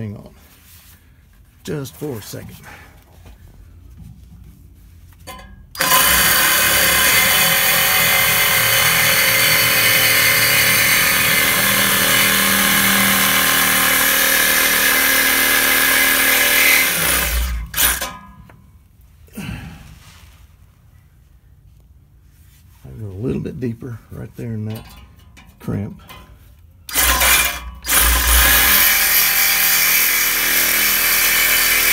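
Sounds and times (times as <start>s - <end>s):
reciprocating saw cutting steel pipe: 5.8s - 18.2s, 26.9s - 31.9s.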